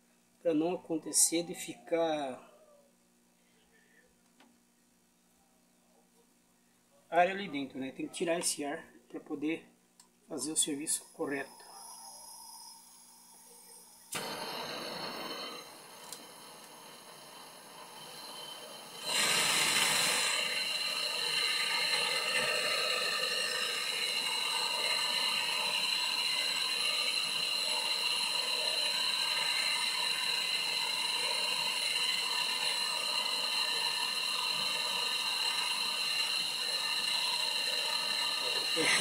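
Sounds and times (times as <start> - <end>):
gas torch hissing: 10.5 - 39.0.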